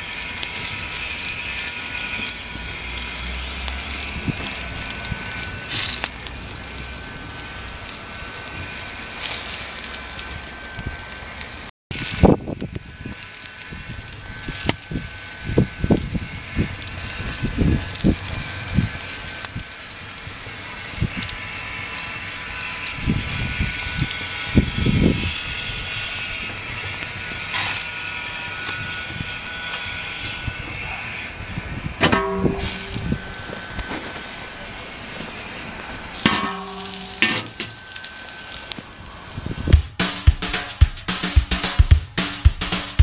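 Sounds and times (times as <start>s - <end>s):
fire crackling: 0.0s - 29.5s, 30.9s - 43.0s
fire hiss: 0.0s - 31.9s, 32.5s - 39.7s
low thumps: 32.0s - 33.3s, 39.7s - 43.0s.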